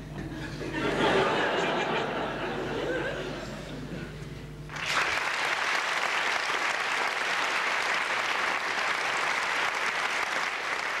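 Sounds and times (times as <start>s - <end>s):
audience applauding: 4.7s - 11.0s.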